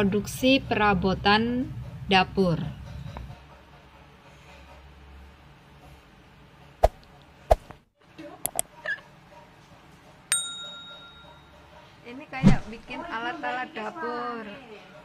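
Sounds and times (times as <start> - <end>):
bright bell ding: 10.3 - 11.6.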